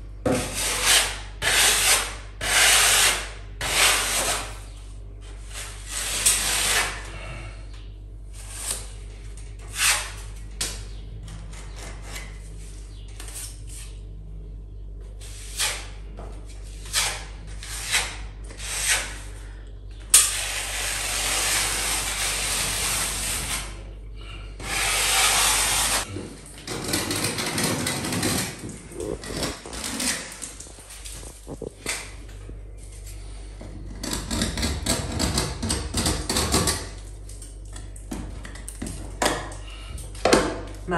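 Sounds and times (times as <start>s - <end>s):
hand tool scraping plaster: 0.3s - 4.6s, 5.4s - 7.1s, 9.6s - 10.3s, 16.7s - 19.3s, 20.2s - 23.8s, 24.6s - 32.0s, 33.6s - 36.9s.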